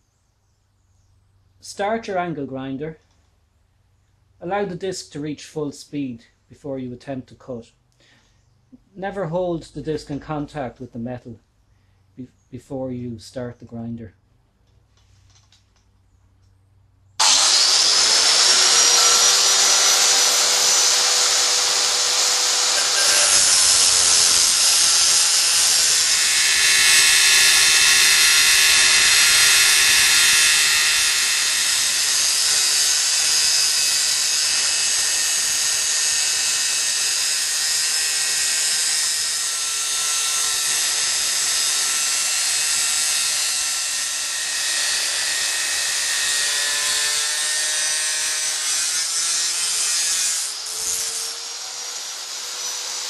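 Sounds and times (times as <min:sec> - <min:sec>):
angle grinder motor whine: 0:17.2 - 0:53.0
grinding disc cutting steel: 0:17.2 - 0:53.0.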